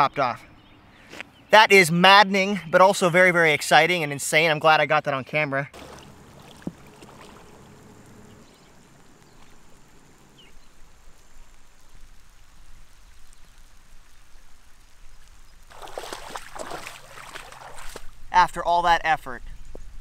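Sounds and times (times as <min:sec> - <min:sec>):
faint water wash: 0:05.8 - 0:18.4.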